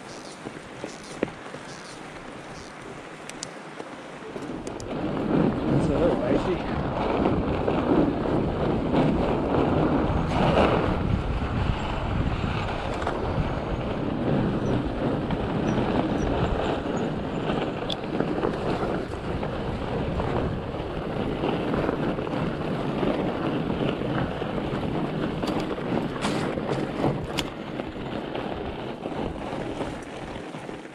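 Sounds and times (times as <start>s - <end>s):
sharp clicks: 0.0s - 3.6s
bike rattling: 0.0s - 30.9s
tyres rolling over snow: 0.0s - 30.9s
wind buffeting microphone: 0.0s - 30.9s.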